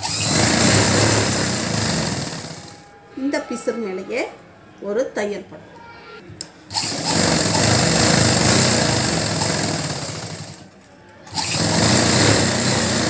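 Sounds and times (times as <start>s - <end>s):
sewing machine stitching: 0.0s - 2.8s, 6.7s - 10.6s, 11.3s - 13.0s.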